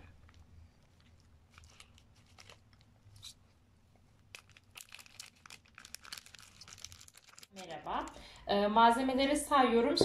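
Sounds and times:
soft clicks and crinkles of plastic bag: 0:00.2 - 0:03.2, 0:04.1 - 0:08.2.

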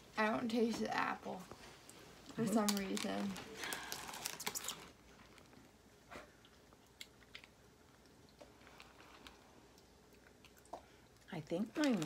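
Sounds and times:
person chewing: 0:06.2 - 0:11.3.

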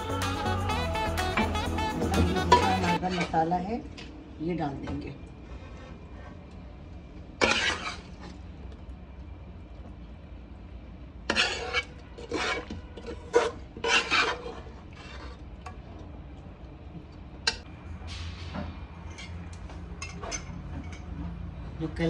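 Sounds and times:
metal spoon scraping a pot: 0:07.4 - 0:08.4, 0:11.2 - 0:15.6.

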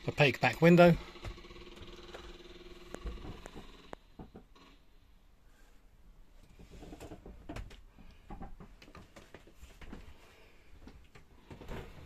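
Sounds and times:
small knocks: 0:02.9 - 0:04.5, 0:06.5 - 0:10.1.

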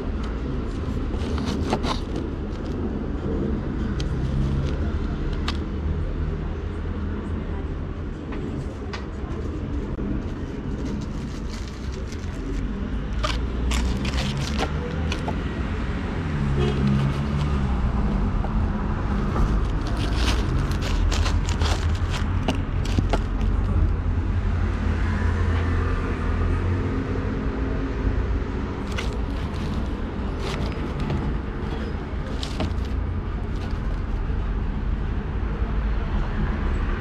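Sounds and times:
street traffic rumble: 0:00.0 - 0:37.0
hands handling objects: 0:00.7 - 0:02.8, 0:04.0 - 0:05.6, 0:10.0 - 0:15.6, 0:16.6 - 0:17.8, 0:19.1 - 0:23.9, 0:28.7 - 0:34.1.

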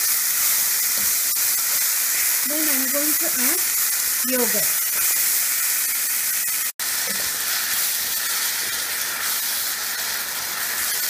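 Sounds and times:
food sizzling in a frying pan: 0:00.0 - 0:11.0.

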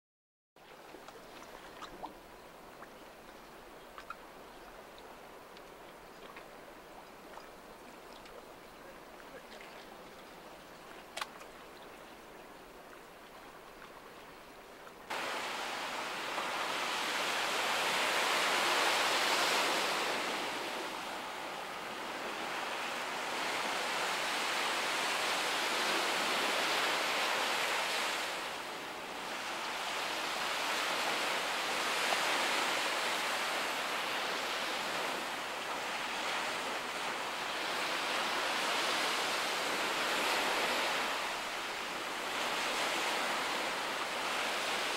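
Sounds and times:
surf washing against breakwater: 0:15.1 - 0:44.9.

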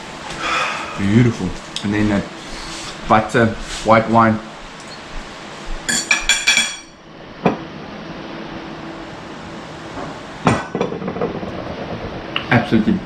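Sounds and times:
tableware clinking on plate: 0:05.9 - 0:07.6.

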